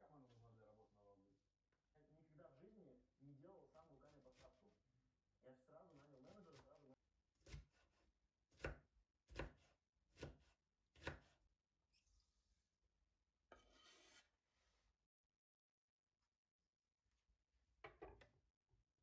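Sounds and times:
knife chopping on cutting board: 7.4s - 11.4s
knife scraping rustle: 13.5s - 14.4s.

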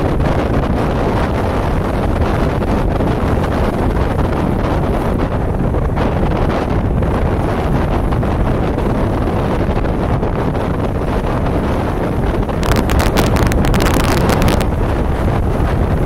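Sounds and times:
wind buffeting microphone: 0.0s - 16.0s
breaking surf: 12.6s - 14.9s.

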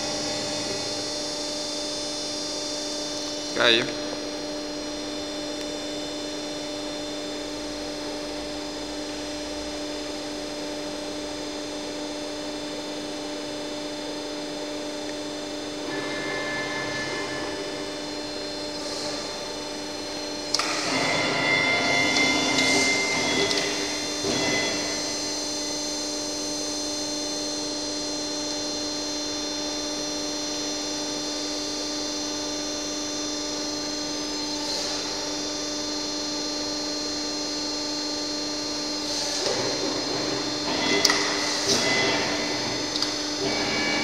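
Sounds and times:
punch press humming: 0.0s - 4.4s, 12.7s - 28.7s, 37.2s - 44.0s
high steady whine: 0.0s - 44.0s.

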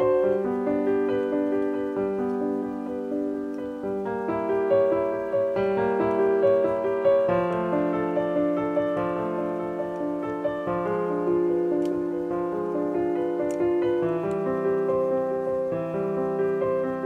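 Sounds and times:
gentle piano music: 0.0s - 17.0s.

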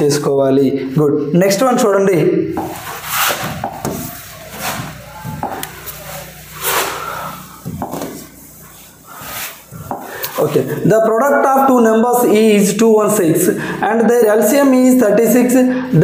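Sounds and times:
hands rubbing and scraping materials: 2.6s - 10.8s.

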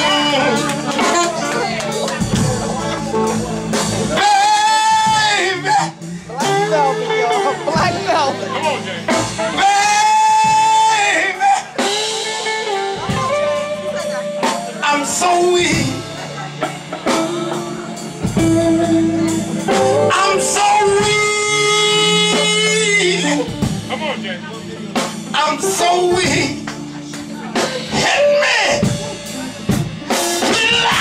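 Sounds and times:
person singing long notes: 0.0s - 7.7s
guitar: 0.0s - 31.0s.

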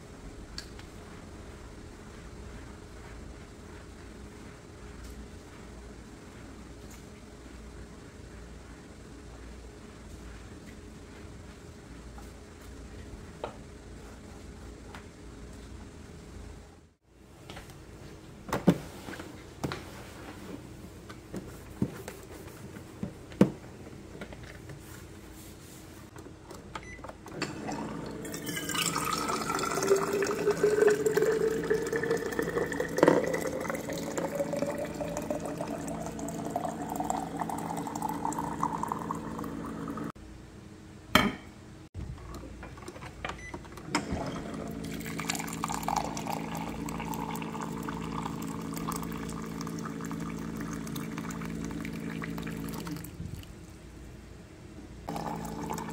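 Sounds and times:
water running into a glass: 27.5s - 40.1s, 44.6s - 53.5s, 55.1s - 55.9s
hot water pouring into a flask: 27.7s - 40.1s, 44.9s - 53.2s, 55.1s - 55.9s.

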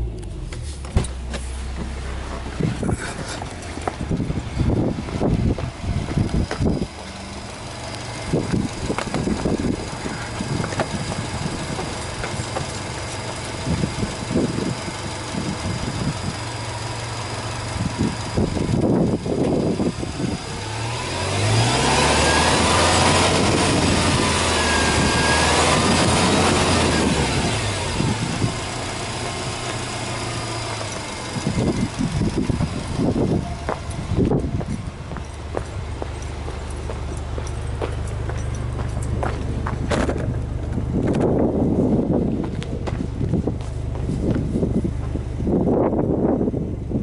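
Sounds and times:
car engine idling: 0.0s - 47.0s
handling knocks and rustles: 34.4s - 41.4s.

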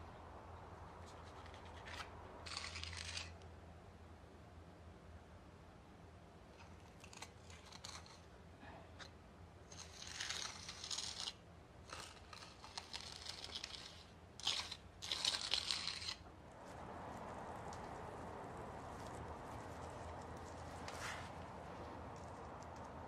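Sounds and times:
scratchy scraping on wood: 1.0s - 3.4s, 6.6s - 8.3s, 9.7s - 23.0s
loud rasping tearing sound: 1.2s - 3.4s, 6.6s - 8.3s, 9.7s - 16.3s.

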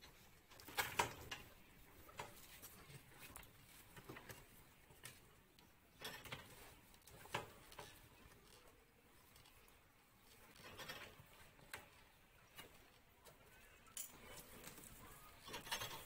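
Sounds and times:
faint knocks and rustles: 0.0s - 16.0s.

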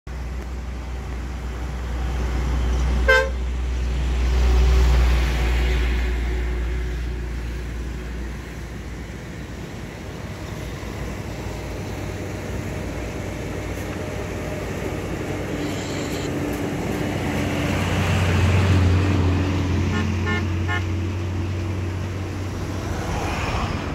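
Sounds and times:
rumble of passing vehicles: 0.1s - 23.9s
vehicle horn toot: 3.1s - 3.4s, 19.9s - 20.9s.

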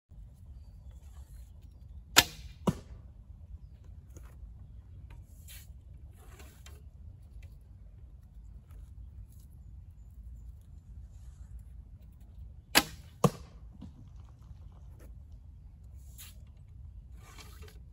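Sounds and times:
low steady rumble: 0.1s - 17.9s
sharp crack: 2.1s - 3.0s, 12.7s - 13.7s
arrow rustles and light clicks: 5.0s - 7.6s, 15.9s - 17.9s.

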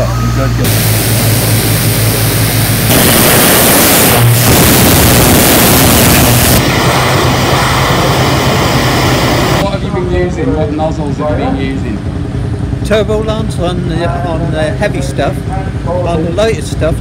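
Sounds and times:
engine hum: 0.0s - 17.0s
pressure washer spray hissing: 0.6s - 9.6s.

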